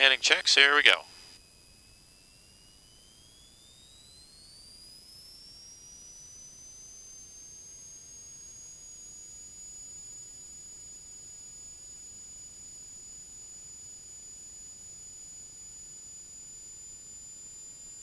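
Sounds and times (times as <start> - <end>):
high-pitched engine whine: 1.4 - 10.6.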